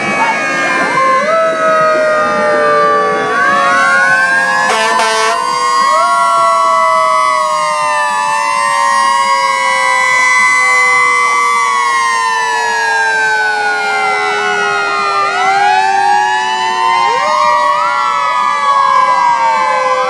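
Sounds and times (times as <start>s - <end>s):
fire truck sirens wailing: 0.0s - 20.0s
horn blast: 4.6s - 5.5s.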